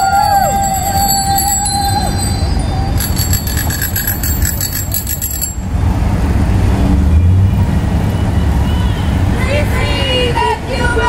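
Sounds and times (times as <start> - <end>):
bicycle bell ringing rapidly: 0.0 - 5.8.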